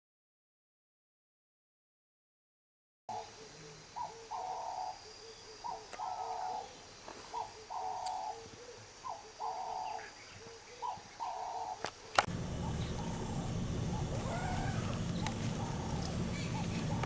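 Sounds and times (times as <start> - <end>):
dove cooing: 3.1 - 17.0
rumbling handling noise: 12.2 - 17.0.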